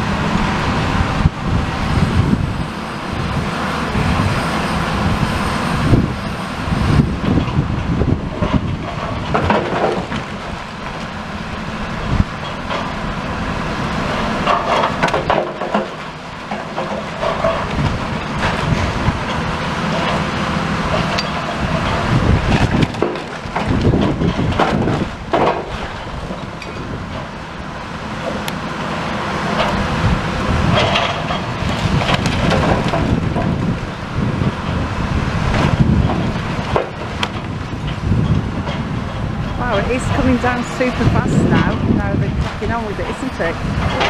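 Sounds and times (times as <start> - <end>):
excavator engine rumbling: 0.0 - 44.0
loud demolition crashes: 6.7 - 11.2, 11.8 - 28.4, 29.1 - 44.0
bricks and timber cracking and falling: 8.2 - 11.0, 14.4 - 20.3, 20.9 - 27.4, 30.6 - 33.8.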